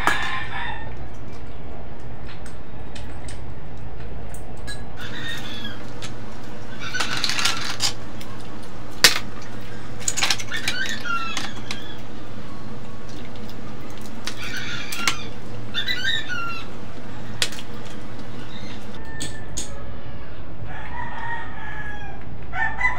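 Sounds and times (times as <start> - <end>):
steady low hum: 0.0 - 19.0
oyster shells clicking and scraping: 5.9 - 12.0.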